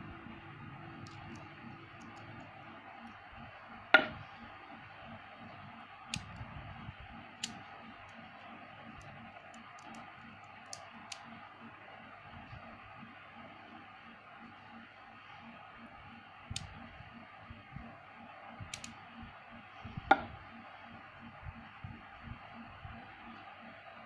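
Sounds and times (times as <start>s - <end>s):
steady low hiss: 0.0s - 24.0s.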